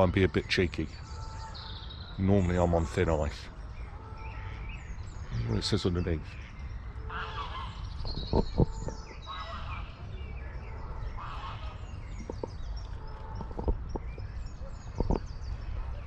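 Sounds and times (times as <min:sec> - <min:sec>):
low wind rumble: 0:00.0 - 0:16.0
small birds chirping: 0:00.0 - 0:16.0
geese calling: 0:00.7 - 0:15.6.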